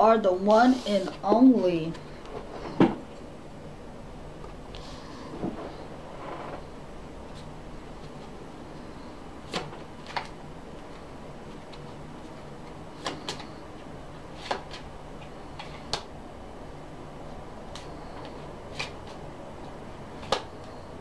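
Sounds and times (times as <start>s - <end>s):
steady low hum: 0.0s - 21.0s
playing cards clicking and tapping: 9.5s - 16.1s, 17.7s - 19.2s, 20.2s - 20.8s.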